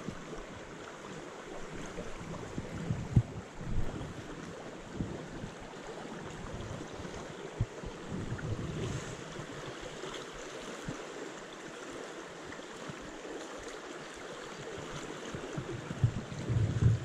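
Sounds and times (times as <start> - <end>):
stream rushing over rocks: 0.0 - 17.0
low bumps: 15.6 - 17.0.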